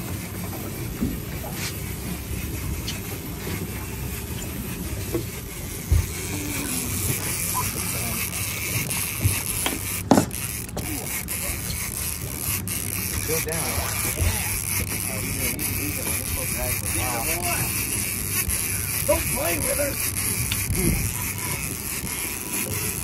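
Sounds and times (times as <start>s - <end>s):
boat deck background noise: 0.0s - 23.0s
faint voices: 0.4s - 9.5s, 10.6s - 23.0s
dull thumps: 9.2s - 10.9s.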